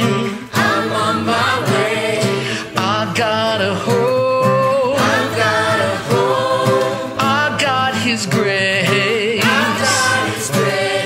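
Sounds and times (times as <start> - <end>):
mixed choir singing: 0.0 - 2.8, 4.9 - 8.0, 9.4 - 11.0.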